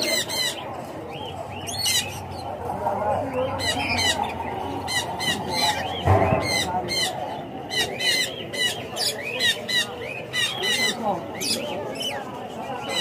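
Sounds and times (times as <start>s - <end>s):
parrots chirping: 0.0s - 12.2s
low background murmur: 0.0s - 13.0s.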